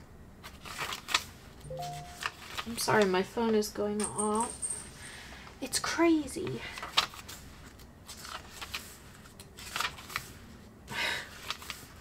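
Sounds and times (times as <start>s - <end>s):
paper pages turning: 0.4s - 1.4s, 2.2s - 2.8s, 6.9s - 10.5s, 11.3s - 12.0s.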